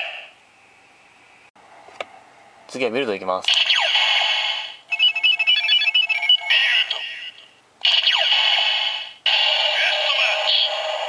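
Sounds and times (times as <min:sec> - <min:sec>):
toy beeping jingle: 0:04.9 - 0:06.8
recorded voice from toy speaker: 0:06.4 - 0:07.4, 0:09.7 - 0:10.8.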